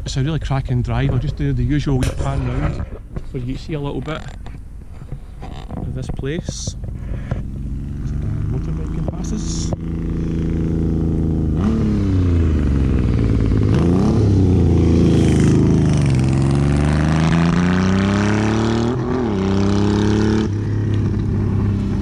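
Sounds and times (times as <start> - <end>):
motorcycle engine accelerating: 5.6 - 22.0.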